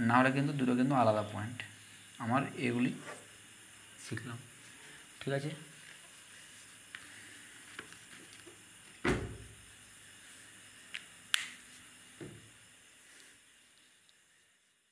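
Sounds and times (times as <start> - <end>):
room hiss: 0.0 - 14.9.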